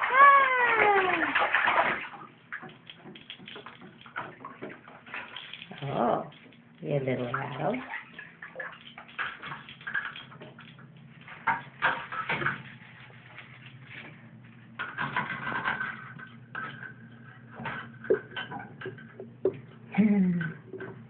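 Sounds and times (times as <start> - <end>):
bathwater sloshing: 0.0 - 21.0
steady low hum: 9.6 - 21.0.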